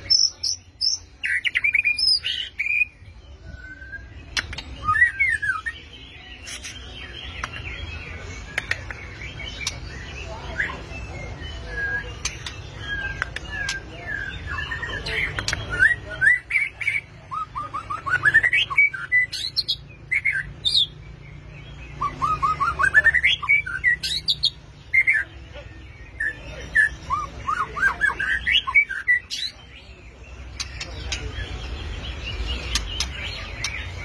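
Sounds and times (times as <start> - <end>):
bird singing whistled notes: 0.0 - 25.2.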